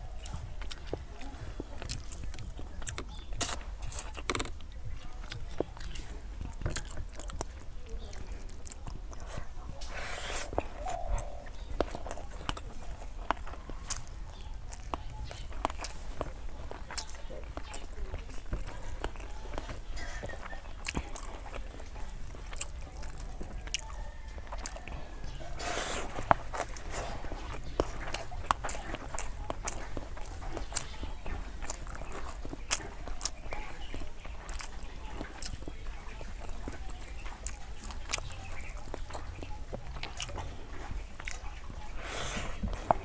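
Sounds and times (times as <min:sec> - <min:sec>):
chewing: 0:00.0 - 0:43.0
wet clicks of rice mixed by hand: 0:00.0 - 0:43.0
fingers scraping food on metal plate: 0:09.0 - 0:21.7.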